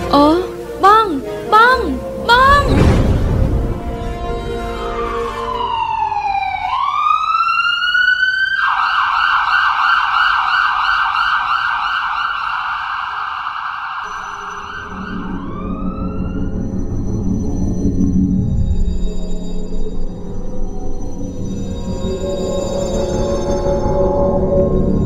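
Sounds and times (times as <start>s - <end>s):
ambulance siren wailing and yelping: 5.0s - 14.0s.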